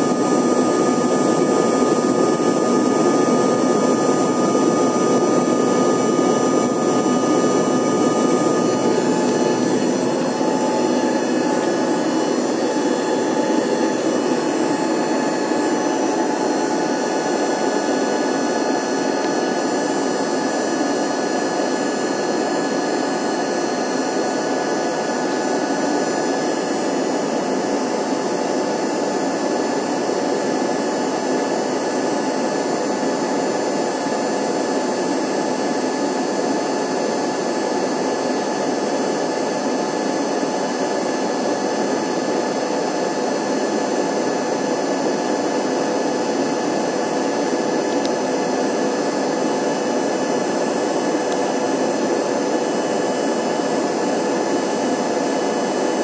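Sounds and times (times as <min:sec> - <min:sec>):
constant whining tones: 0:00.0 - 0:18.2
jet engines droning: 0:00.0 - 0:30.6
rushing air: 0:03.9 - 0:17.7.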